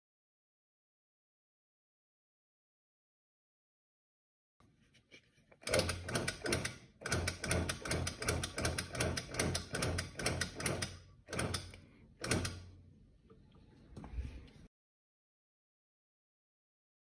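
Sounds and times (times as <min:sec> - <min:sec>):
rapid mechanical clicks: 0:05.6 - 0:12.7.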